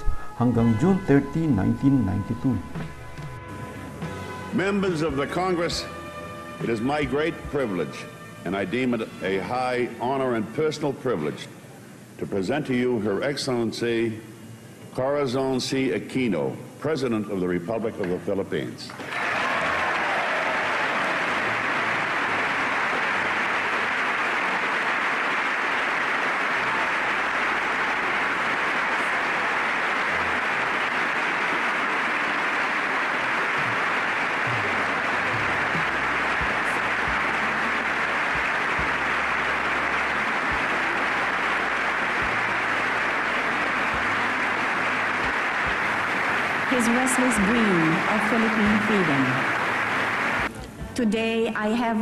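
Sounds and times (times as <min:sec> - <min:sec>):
large audience applauding: 0:19.0 - 0:50.5.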